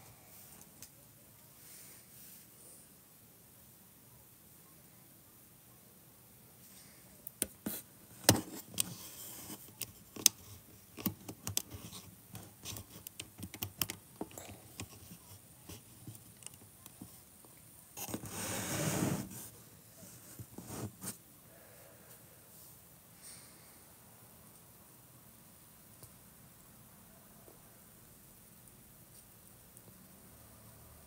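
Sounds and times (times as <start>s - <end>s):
rustling noise: 18.0s - 21.2s.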